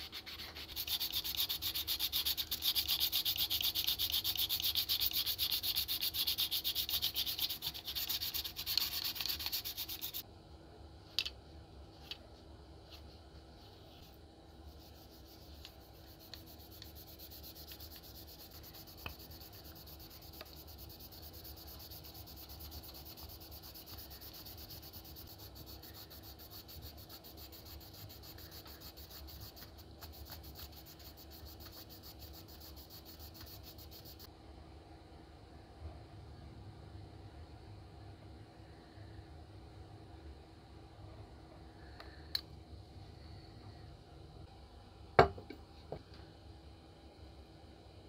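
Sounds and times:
scratchy rubbing on plastic: 0:00.0 - 0:10.2, 0:13.7 - 0:34.3.

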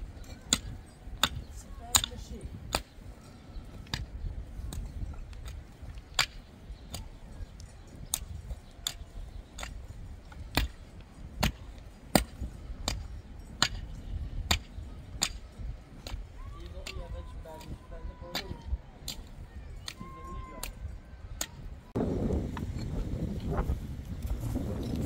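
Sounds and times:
hoe blades chopping rocky soil: 0:00.4 - 0:03.0, 0:08.0 - 0:10.8, 0:11.4 - 0:13.9.

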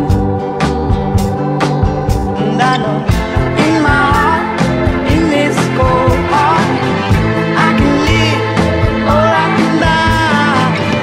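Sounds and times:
song with drum beat and bass: 0:00.0 - 0:11.0.

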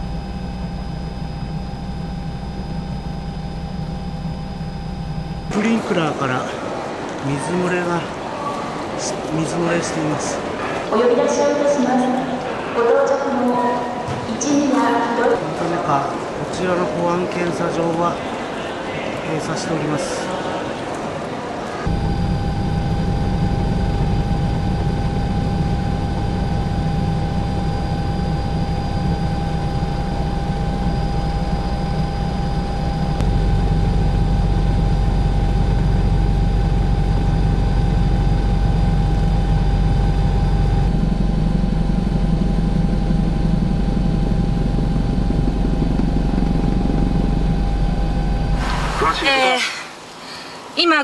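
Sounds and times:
helicopter rotor and engine drone: 0:00.0 - 0:06.4, 0:21.8 - 0:48.6
thin steady whine: 0:00.0 - 0:20.4, 0:21.6 - 0:51.0.

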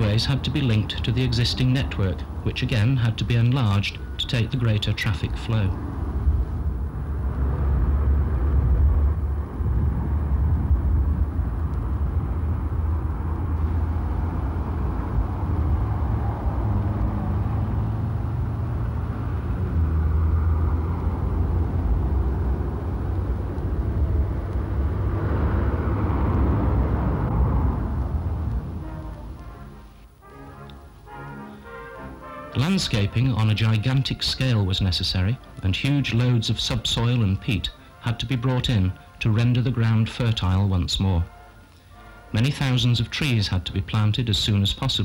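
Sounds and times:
vehicle driving rumble: 0:00.0 - 0:30.2.

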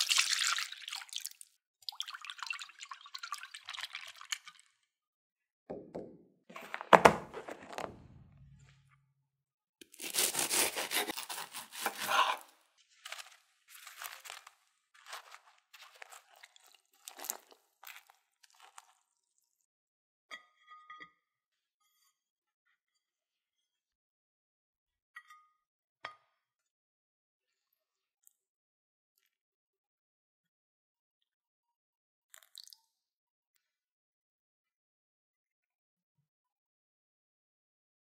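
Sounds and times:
loud knock: 0:05.7 - 0:08.8
knife crunching through pastry: 0:09.8 - 0:19.0.

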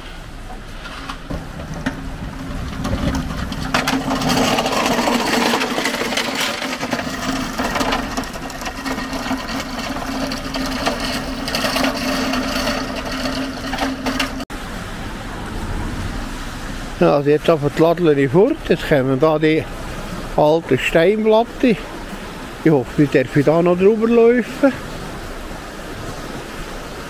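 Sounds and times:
pallet truck wheels rattling: 0:00.0 - 0:14.5
constant humming tone: 0:00.0 - 0:17.0.

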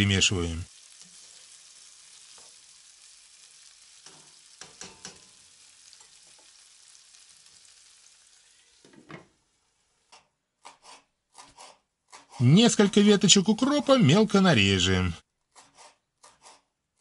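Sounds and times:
vegetables sizzling in oil: 0:00.0 - 0:10.1.

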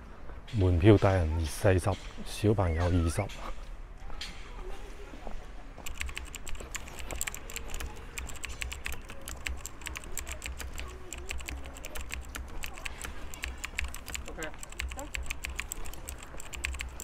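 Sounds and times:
keyboard typing: 0:05.8 - 0:17.0.

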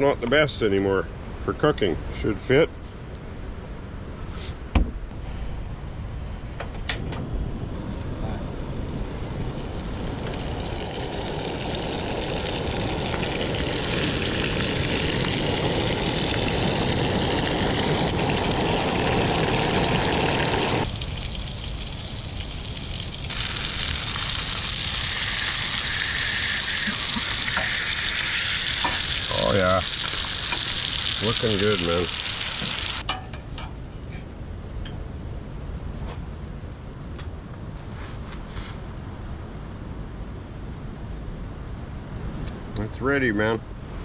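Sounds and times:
fish sizzling in a frying pan: 0:10.1 - 0:33.1.

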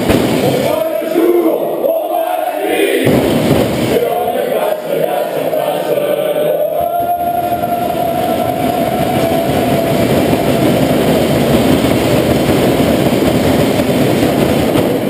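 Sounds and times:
people clapping and cheering: 0:00.0 - 0:15.0
long held voice note: 0:06.5 - 0:11.1.

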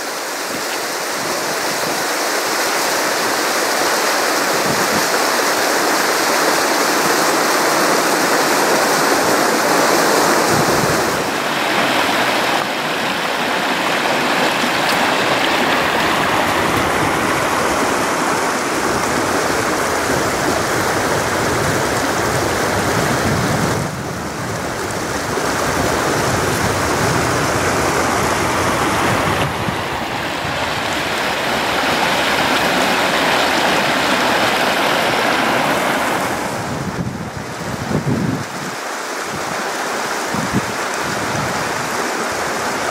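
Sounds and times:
river water rushing over rocks: 0:00.0 - 0:42.9.

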